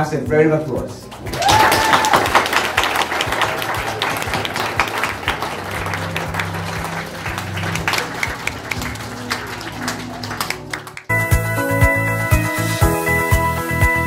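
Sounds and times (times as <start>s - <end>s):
music playing: 0.0s - 14.0s
people applauding: 1.1s - 11.1s.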